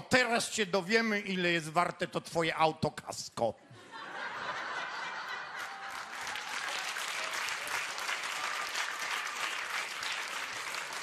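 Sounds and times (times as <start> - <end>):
audience applause: 4.6 - 11.0.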